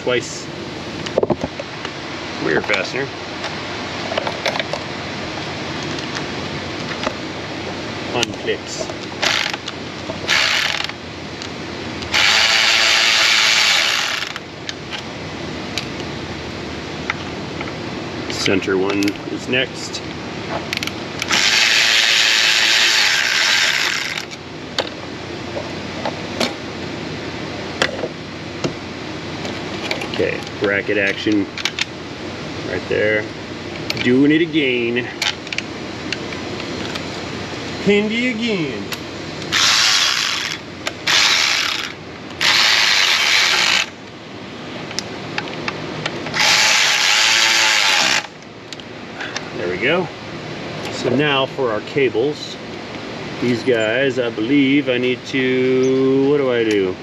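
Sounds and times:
ratchet wrench clicking: 9.2s - 9.7s, 10.3s - 11.0s, 12.1s - 14.4s, 20.8s - 24.4s, 39.5s - 43.9s.

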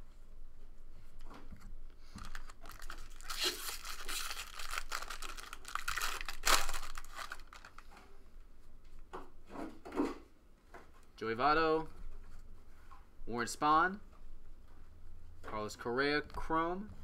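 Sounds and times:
cards rustling: 2.0s - 8.1s
foil wrapper tearing and crinkling: 2.1s - 7.9s.

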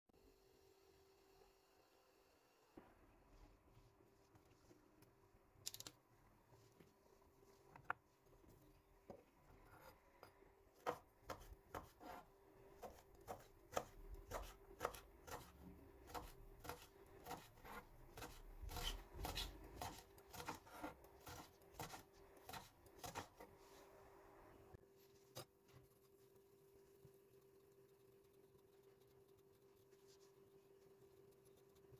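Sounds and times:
knife slicing peppers on board: 10.8s - 23.5s.

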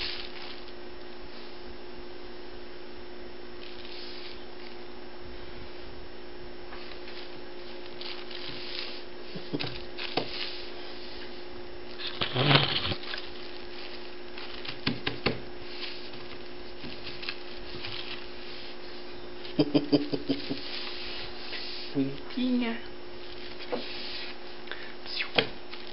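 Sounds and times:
kitten scuffling on paper: 0.0s - 0.8s, 6.8s - 11.3s, 12.0s - 19.1s
steady electrical hum: 0.0s - 25.9s.

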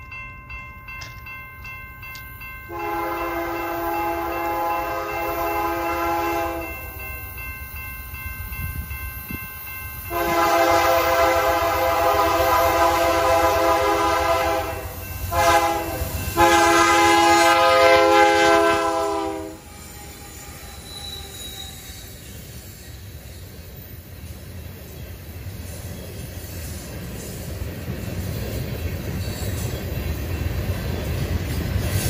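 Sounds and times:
freight train rumbling past: 0.0s - 32.0s
locomotive air horn blasts: 2.7s - 6.7s, 10.1s - 19.7s.

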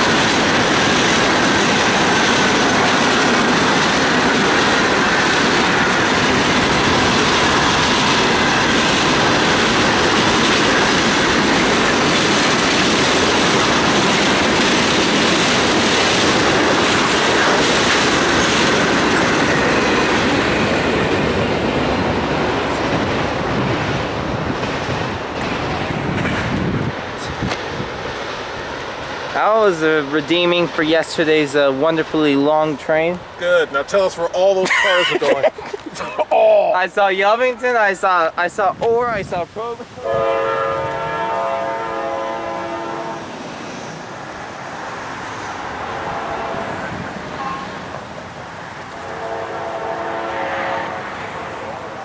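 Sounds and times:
freight train wheels rumbling: 0.0s - 36.0s, 36.8s - 52.0s
steady rushing noise: 0.0s - 36.0s, 36.8s - 52.0s
locomotive air horn blast: 40.0s - 43.3s, 46.0s - 47.7s, 49.0s - 51.5s.

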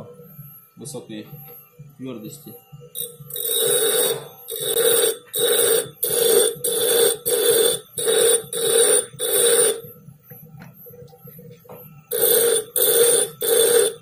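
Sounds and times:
grinder motor hum: 2.0s - 14.0s
grinder wheel grinding steel: 3.0s - 9.9s, 12.1s - 14.0s.

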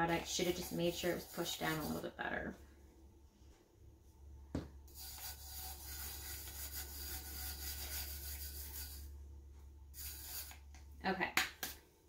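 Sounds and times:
hand rubbing glitter on tumbler: 0.0s - 2.2s, 4.9s - 9.1s, 9.9s - 10.6s.

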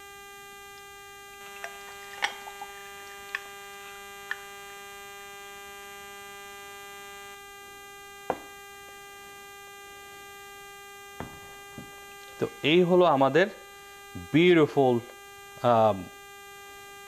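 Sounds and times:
mains hum: 0.0s - 17.0s
ice clinking in glass: 0.8s - 3.6s
liquid pouring into glass: 0.8s - 3.6s.

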